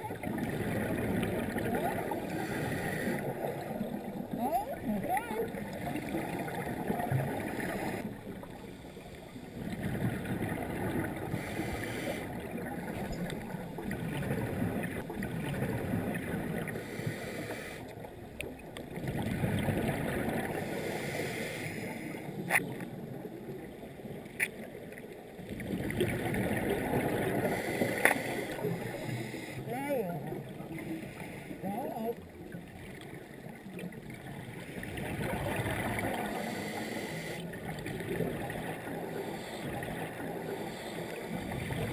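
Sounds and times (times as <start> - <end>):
underwater exhaled bubbles: 0.0 - 41.9.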